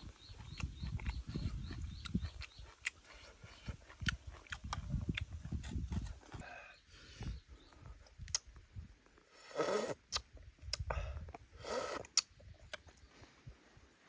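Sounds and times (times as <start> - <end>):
chewing: 0.2 - 6.6
spoon and lip clicks: 8.2 - 8.5, 10.1 - 10.8
person slurping soup: 9.4 - 10.2.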